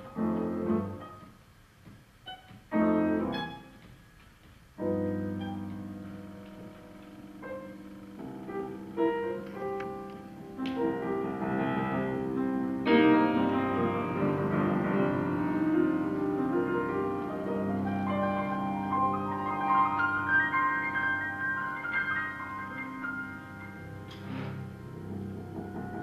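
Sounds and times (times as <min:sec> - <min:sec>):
two pianos playing jazz: 0:00.0 - 0:26.0.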